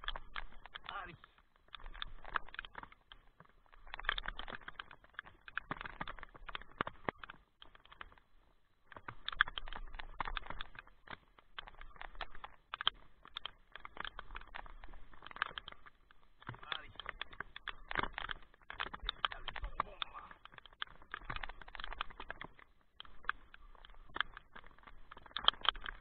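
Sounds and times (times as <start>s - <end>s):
heavy rain drops tapping: 12.5s - 22.6s.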